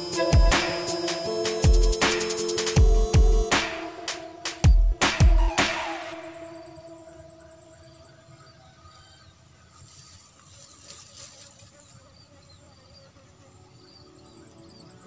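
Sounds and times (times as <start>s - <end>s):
insect high pulsing trill: 0.0s - 15.0s
soft rustle: 9.7s - 12.2s.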